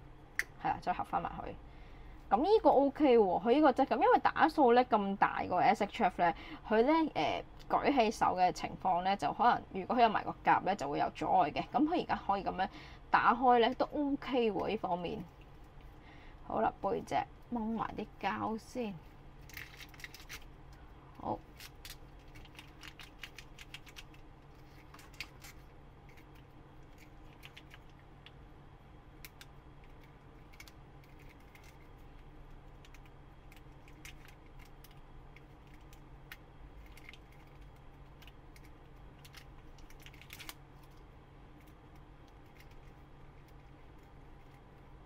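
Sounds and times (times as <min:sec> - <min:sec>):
plastic film peeling and crinkling: 0:19.4 - 0:20.5, 0:21.4 - 0:27.9, 0:39.2 - 0:41.0.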